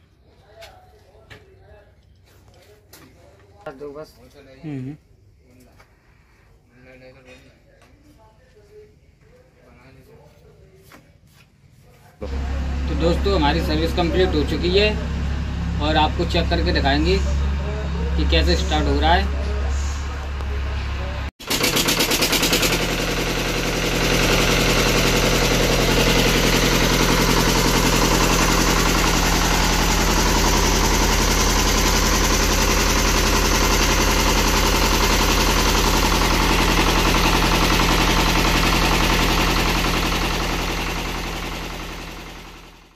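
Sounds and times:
diesel engine running: 0:12.2 - 0:42.9.

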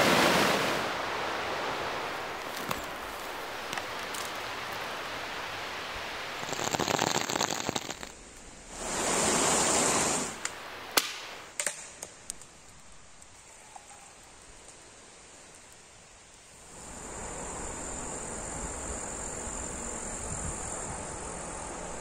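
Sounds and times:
rushing stream: 0:00.0 - 0:11.6
crackling: 0:01.6 - 0:16.8
sharp clicks: 0:06.4 - 0:08.4.

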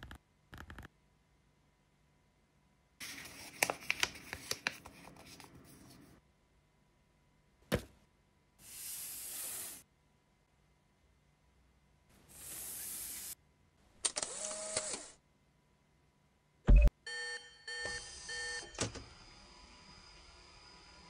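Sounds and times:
paper crackling and crinkling: 0:03.0 - 0:06.0
paper sliding across desk: 0:08.6 - 0:09.8.

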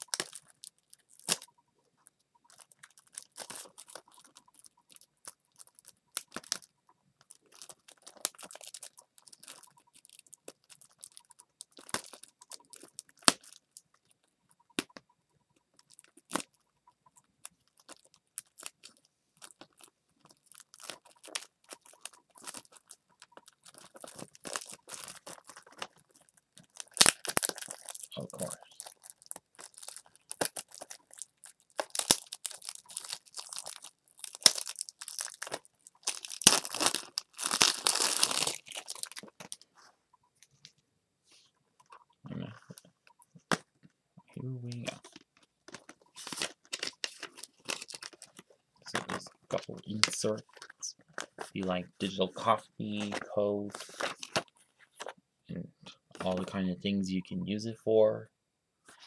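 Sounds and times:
plastic shrink-wrap crinkling: 0:00.0 - 0:15.0, 0:17.4 - 0:39.9, 0:44.8 - 0:52.2, 0:52.9 - 0:55.2.

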